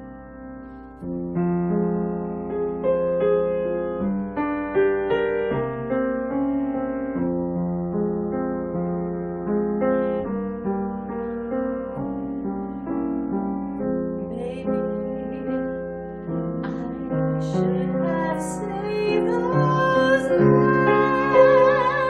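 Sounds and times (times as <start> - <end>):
piano playing slow chords: 0.0 - 22.0
woman singing a ballad: 14.3 - 15.8, 16.6 - 22.0.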